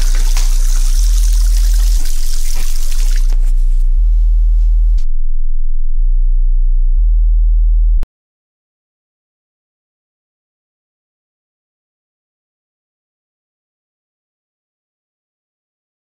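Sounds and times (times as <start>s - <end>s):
pouring water sample: 0.0s - 3.5s
deep electronic bass tone: 0.0s - 8.1s.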